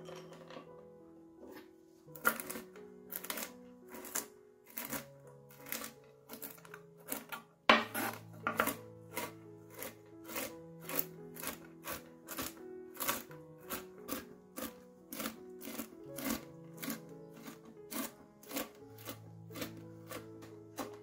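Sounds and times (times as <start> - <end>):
background music: 0.0 - 21.0
knife chopping on wooden board: 5.6 - 21.0.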